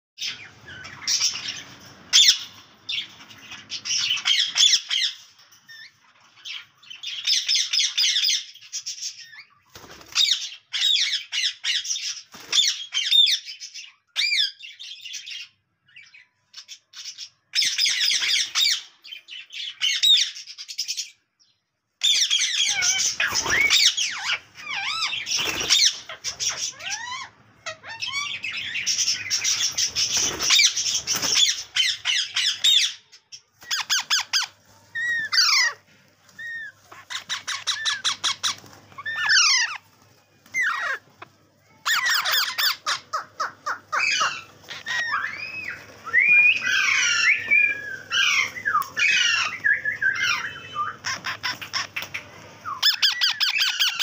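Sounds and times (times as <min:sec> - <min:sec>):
parrot squawking and chirping: 0:00.2 - 0:21.2, 0:22.0 - 0:54.0.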